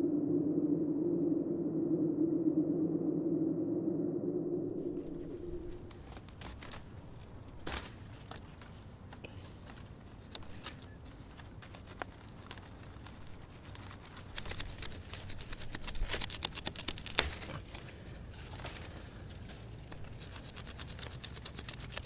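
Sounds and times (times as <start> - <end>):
dry plants crackling and rustling: 4.8 - 22.0.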